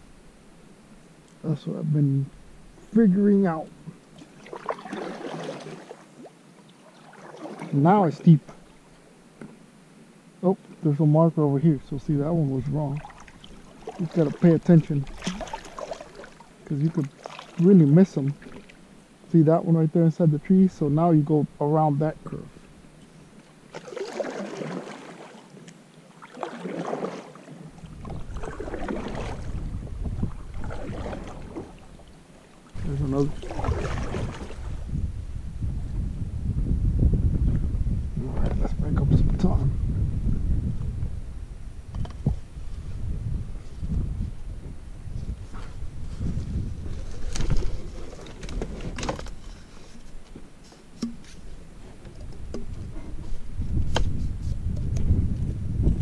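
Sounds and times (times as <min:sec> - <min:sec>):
paddle strokes splashing water: 0:03.9 - 0:07.9, 0:12.6 - 0:19.0, 0:23.4 - 0:34.9, 0:46.8 - 0:53.2
wind rumble on microphone: 0:27.7 - 0:56.0
kayak knocking on branches: 0:50.0 - 0:53.0.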